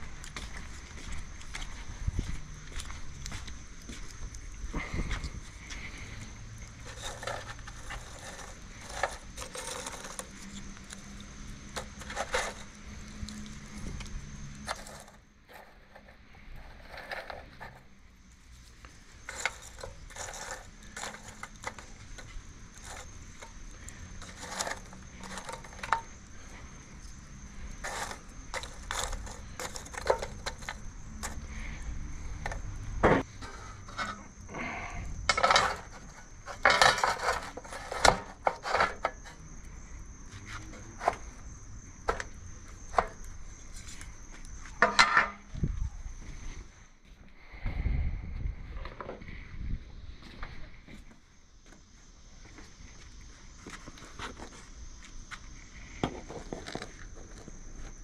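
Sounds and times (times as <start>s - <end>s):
charcoal clinking and scraping: 4.8s - 13.8s, 14.5s - 39.4s, 44.7s - 45.5s.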